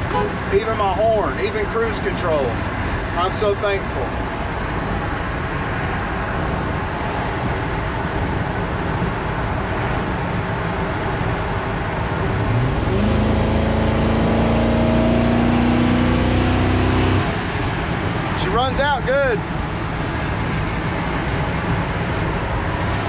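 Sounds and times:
road noise: 0.0 - 23.0
truck engine accelerating: 12.0 - 18.4.

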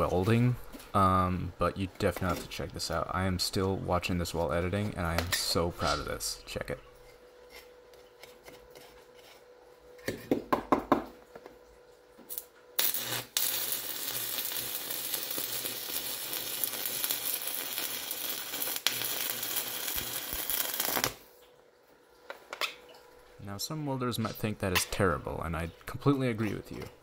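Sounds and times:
welder arc striking clicks: 12.3 - 21.2
welding arc crackling: 12.3 - 21.3.

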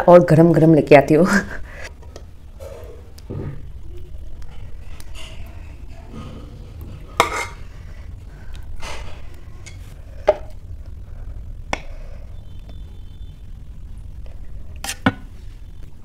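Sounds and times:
metal ladle scraping steel pot: 7.1 - 7.7, 14.8 - 15.2.

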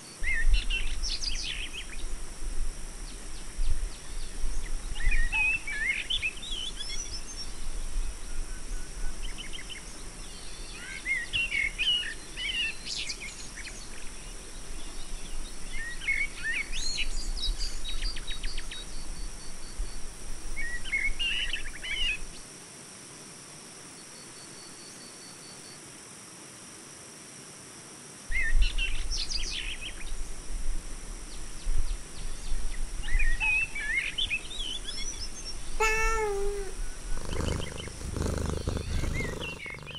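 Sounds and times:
steady background hiss: 0.0 - 39.9
cartoon cat meow: 35.8 - 36.8
birds chirping: 35.8 - 39.9.

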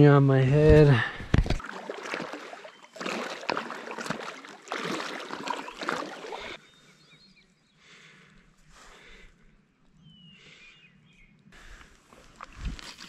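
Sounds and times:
water splashing and sloshing: 0.6 - 6.6.

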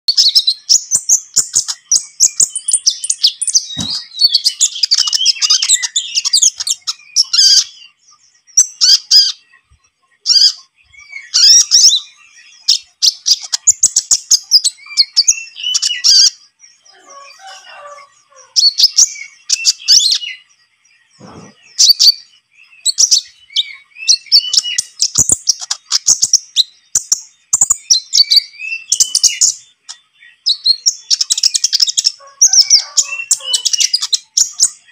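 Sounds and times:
sunbird twittering song: 0.1 - 34.9.

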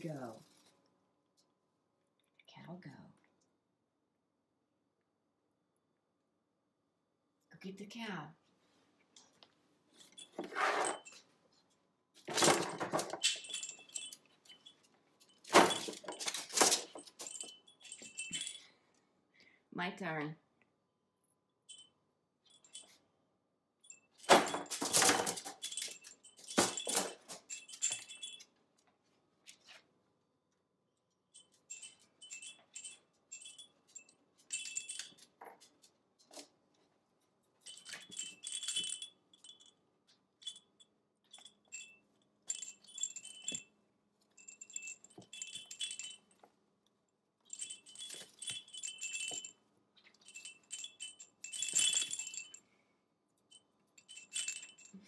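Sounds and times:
bell jingling in fabric rattle: 9.2 - 11.4, 12.2 - 18.8, 21.7 - 23.0, 23.8 - 28.5, 31.3 - 36.5, 37.4 - 46.6, 47.4 - 52.8, 53.4 - 55.0.

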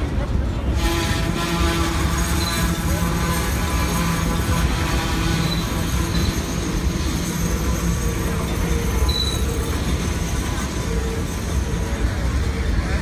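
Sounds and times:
train wheels rumbling on rails: 0.0 - 13.0
high wheel squeals: 0.8 - 13.0.

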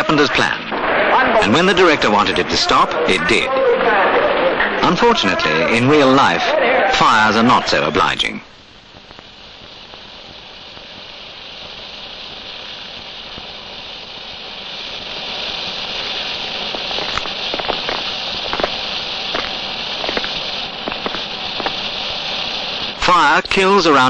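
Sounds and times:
fire crackling and popping: 0.0 - 24.0
fire hissing: 0.0 - 24.0.

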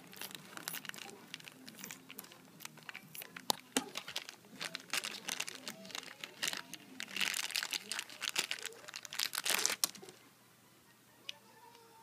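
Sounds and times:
plastic bag crinkling: 0.0 - 10.2.

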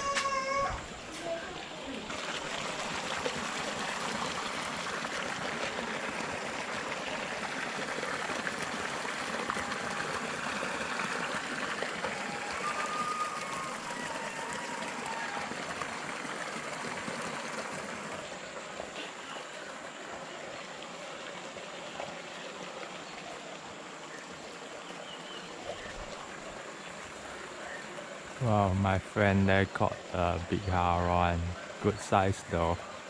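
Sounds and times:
fish splashing in water: 1.9 - 19.5.

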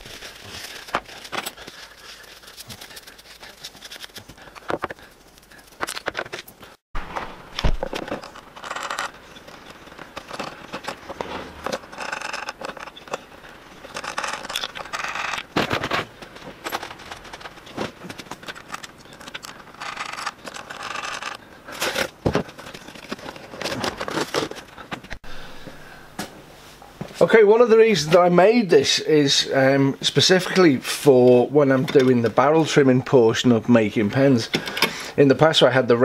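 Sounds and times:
wood scraping on wood: 0.0 - 25.2.

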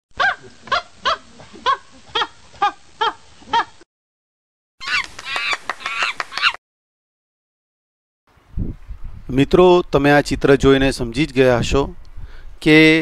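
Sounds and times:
monkey pitched cries: 0.2 - 3.8, 4.8 - 6.6
monkey high chattering: 4.8 - 6.6.

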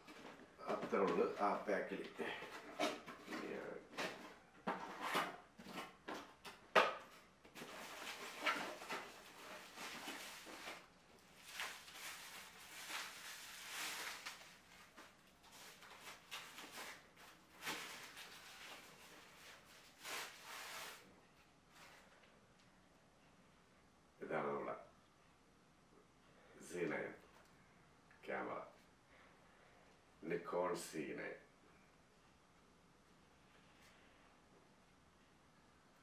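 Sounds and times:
soft wrap rustling: 7.6 - 22.3.

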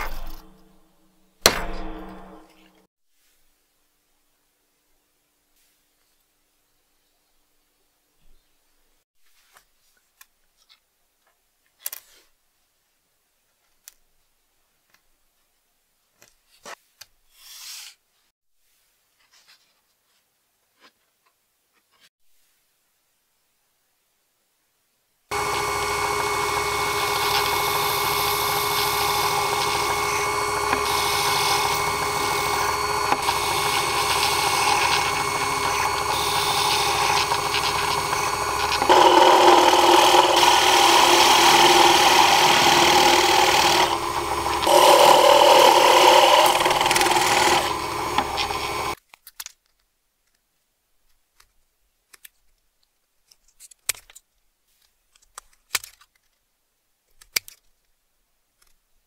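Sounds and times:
drill press running: 25.3 - 49.0.

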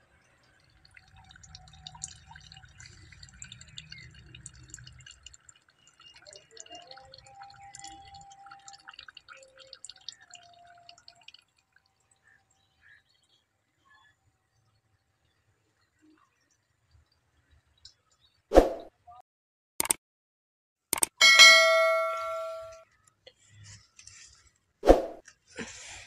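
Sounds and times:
water dripping: 0.0 - 18.5, 21.0 - 23.4.

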